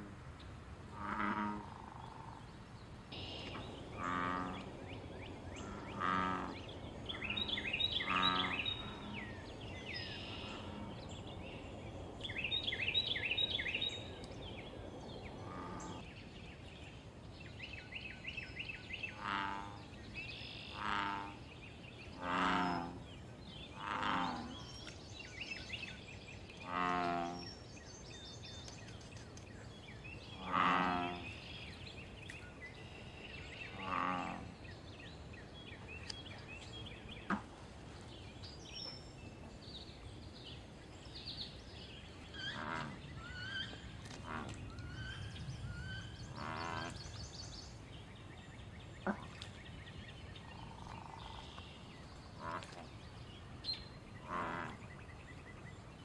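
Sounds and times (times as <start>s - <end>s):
bullfrogs croaking: 0.9s - 2.5s, 3.1s - 4.8s, 5.6s - 9.3s, 19.2s - 19.8s, 20.7s - 21.4s, 22.2s - 23.0s, 23.8s - 24.6s, 30.4s - 31.4s, 33.7s - 34.6s, 46.0s - 47.1s, 50.6s - 51.6s, 54.2s - 54.9s.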